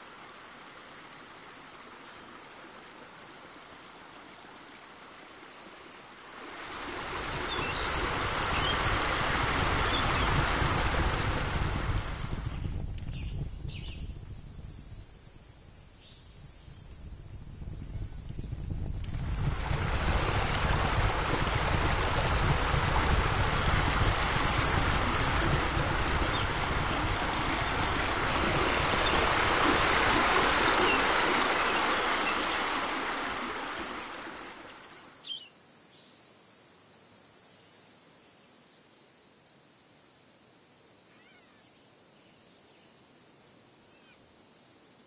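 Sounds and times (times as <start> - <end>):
crickets chirping: 0.0 - 45.0
steady rushing noise: 6.4 - 13.0, 18.2 - 35.0.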